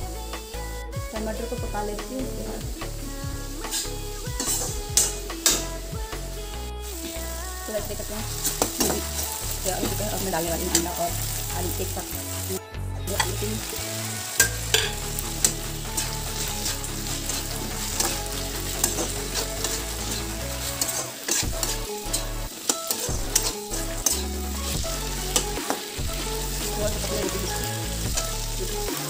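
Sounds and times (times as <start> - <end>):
food sizzling in a pan: 1.3 - 29.0
metal spatula scraping a pan: 3.6 - 5.7, 7.0 - 11.4, 14.4 - 28.4.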